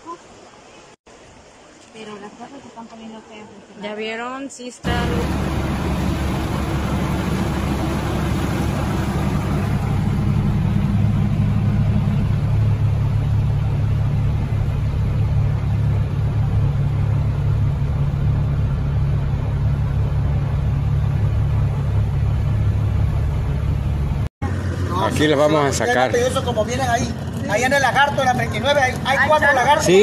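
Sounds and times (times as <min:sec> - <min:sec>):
motor humming: 0:04.8 - 0:24.2
water washing: 0:04.8 - 0:30.0.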